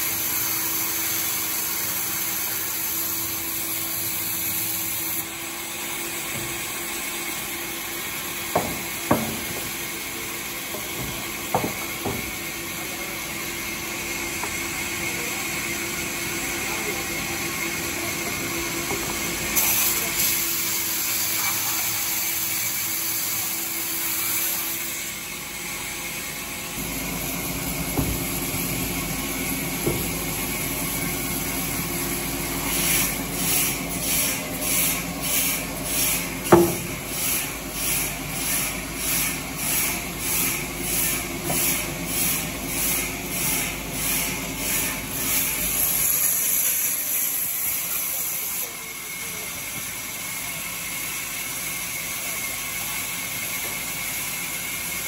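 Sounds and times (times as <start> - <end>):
band saw cutting timber: 0.0 - 55.0
sharp knock: 8.5 - 9.8, 36.5 - 36.9.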